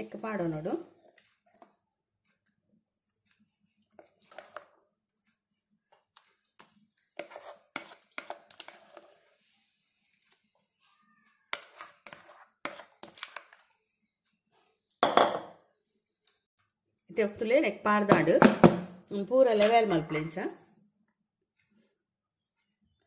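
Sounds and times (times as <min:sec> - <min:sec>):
spatula scraping glass bowl: 0:04.0 - 0:04.8, 0:06.4 - 0:10.8, 0:11.5 - 0:13.7.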